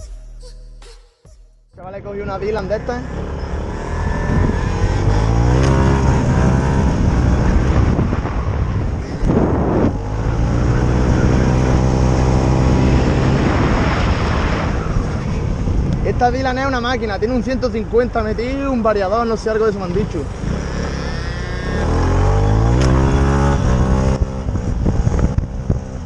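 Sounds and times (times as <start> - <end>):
rush of noise: 1.9 - 17.3
scooter engine revving: 2.5 - 8.0, 20.2 - 26.0.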